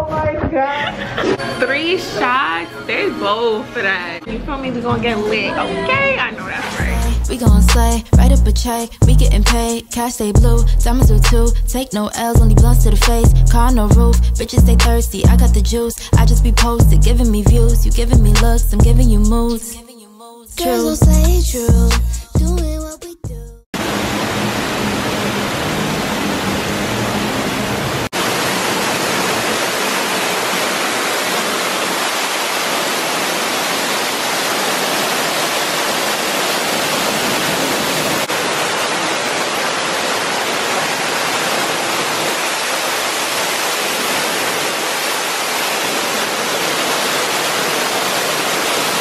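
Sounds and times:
loud steady rushing hiss: 23.8 - 49.0.

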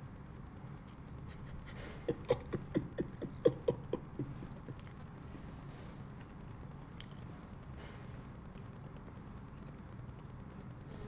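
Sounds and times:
man making mouth sounds: 1.6 - 5.0.

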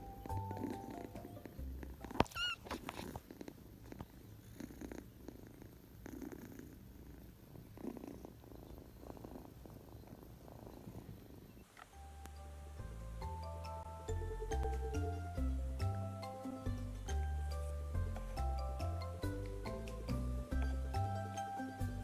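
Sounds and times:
kitten purring: 0.0 - 12.4.

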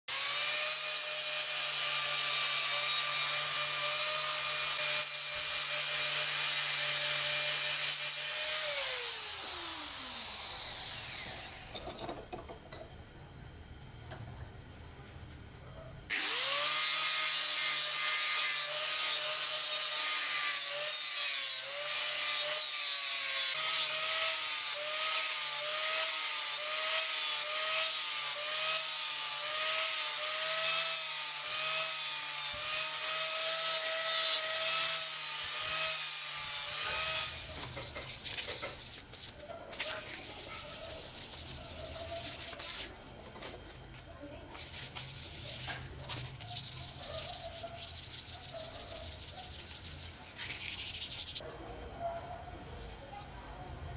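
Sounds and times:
angle grinder grinding metal: 0.1 - 12.8, 16.1 - 43.0, 44.5 - 51.4
rubbing on metal: 37.3 - 42.9, 44.6 - 51.4.

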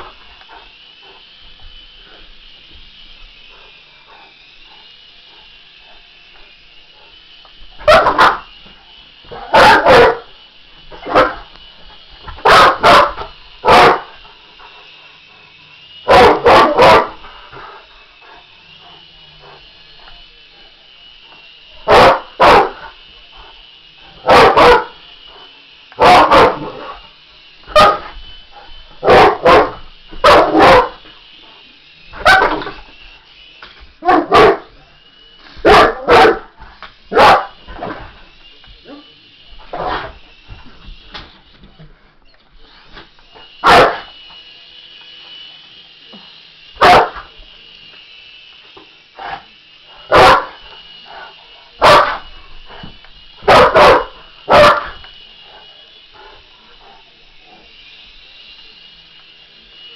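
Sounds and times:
dog barking loudly: 7.8 - 8.4, 9.4 - 10.3, 11.0 - 11.4, 12.4 - 14.1, 16.1 - 17.2, 21.9 - 22.8, 24.2 - 24.9, 26.0 - 26.8, 27.7 - 28.0, 29.0 - 31.0, 32.2 - 32.6, 34.0 - 34.7, 35.6 - 36.5, 37.1 - 37.6, 43.6 - 44.1, 46.8 - 47.2, 50.1 - 50.5, 51.8 - 52.2, 53.5 - 55.0.

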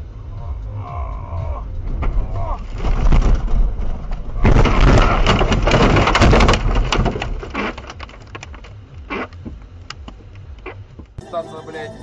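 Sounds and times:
snow pelting car body: 1.9 - 9.6.

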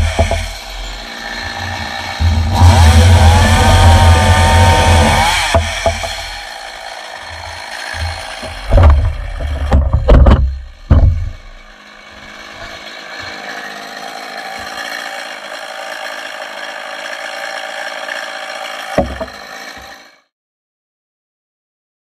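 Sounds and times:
heavy knocks and bumps: 0.0 - 0.6, 2.2 - 6.5, 7.3 - 11.7, 19.0 - 19.4
chainsaw idling: 0.0 - 20.3.

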